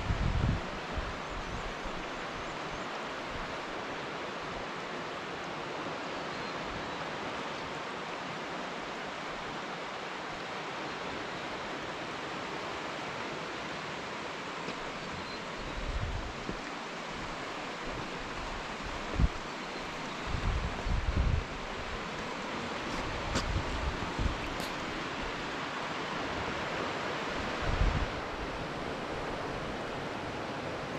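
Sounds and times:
wind buffeting microphone: 0.0s - 1.7s, 15.5s - 19.5s, 20.2s - 22.1s, 22.8s - 25.2s, 27.4s - 29.5s
river water rushing: 0.4s - 30.9s.

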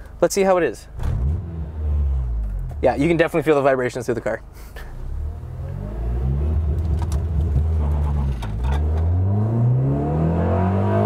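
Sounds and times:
car engine accelerating hard: 5.0s - 11.0s.

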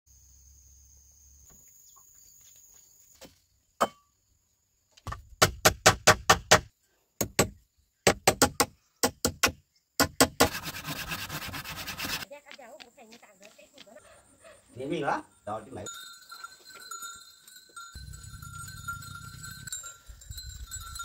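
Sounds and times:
insects trilling: 0.1s - 5.1s
rasping scrape on wood: 10.4s - 12.2s.

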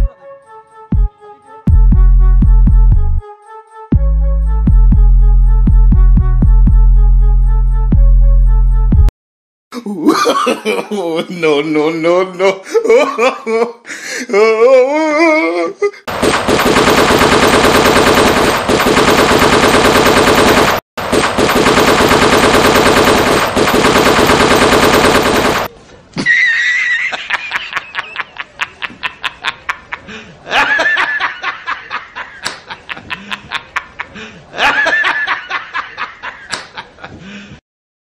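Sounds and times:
people laughing: 9.9s - 13.8s, 26.2s - 37.2s
machine-gun fire sound effect: 16.1s - 25.7s
rapid clicking: 16.2s - 25.7s.

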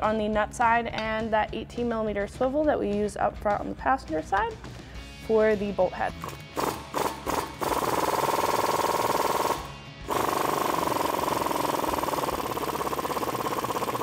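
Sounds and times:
impact wrench hammering: 6.2s - 14.0s.

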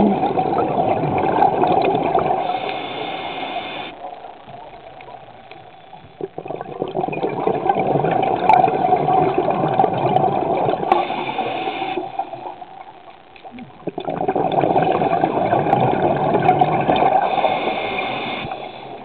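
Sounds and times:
gurgling exhaled bubbles: 0.0s - 2.8s, 6.2s - 12.6s, 13.4s - 19.0s
regulator hissing inhale: 2.4s - 4.0s, 10.9s - 12.2s, 17.2s - 19.0s.

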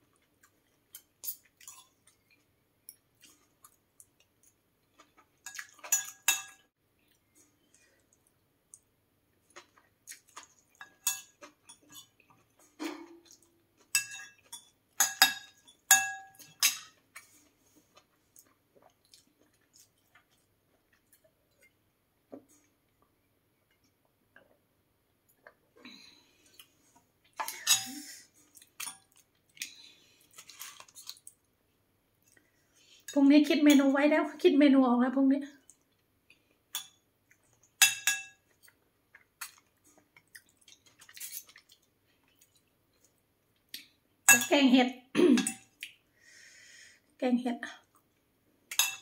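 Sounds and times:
cutlery clinking on plates: 5.4s - 6.6s, 10.8s - 17.0s, 37.8s - 38.5s, 44.3s - 44.5s, 45.3s - 45.8s, 48.7s - 49.0s
chewing: 7.0s - 14.8s, 16.8s - 21.8s, 28.3s - 31.4s, 38.5s - 44.0s.

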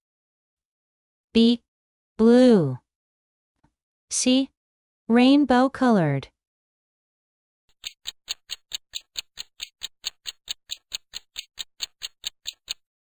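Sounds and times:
countdown timer ticks: 7.7s - 12.8s.

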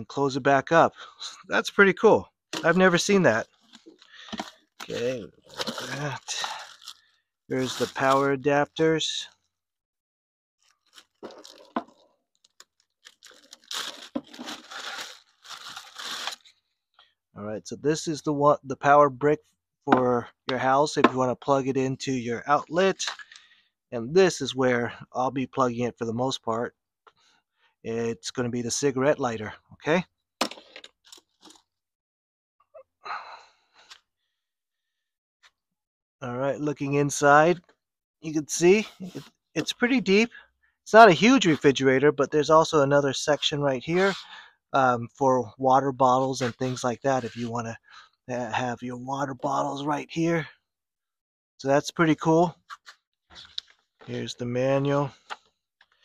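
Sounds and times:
cord rustle: 3.4s - 8.3s, 10.6s - 16.5s
plastic bag crinkling: 3.4s - 8.3s, 10.6s - 16.5s.

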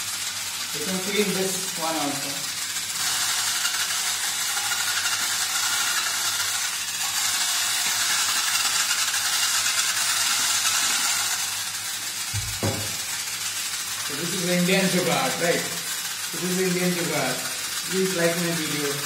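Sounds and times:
spinning brush scrubbing a pan: 0.0s - 19.0s
short low knock: 12.4s - 12.9s.

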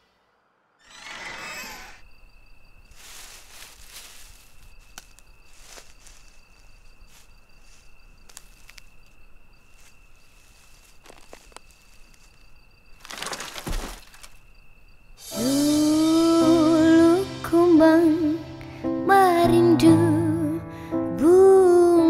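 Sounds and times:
insects chirring: 0.4s - 22.0s
dry bamboo leaves rustling: 2.9s - 14.4s.

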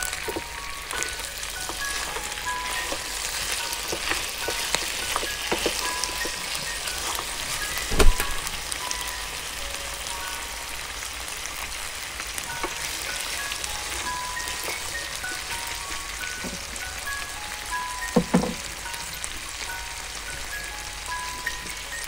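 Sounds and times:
meat sizzling in oil: 0.0s - 22.0s
wooden spoon turning food: 0.0s - 22.0s.

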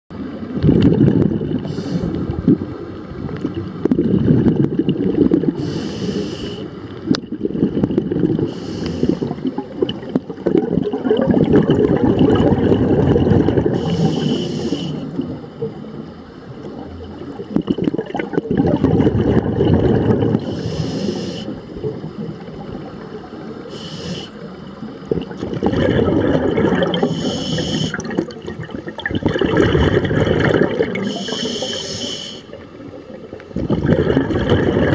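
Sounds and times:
regulator hissing inhalations: 1.7s - 2.2s, 5.6s - 6.7s, 8.5s - 9.4s, 13.8s - 15.1s, 20.4s - 21.6s, 23.7s - 24.5s, 27.0s - 28.0s, 31.0s - 32.5s
bubbling exhalations: 7.2s - 15.8s, 16.8s - 22.6s, 25.0s - 31.8s, 32.4s - 34.9s.

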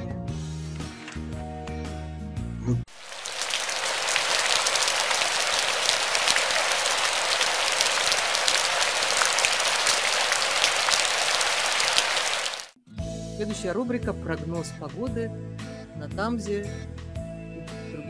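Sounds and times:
steady rain falling: 2.9s - 12.8s.

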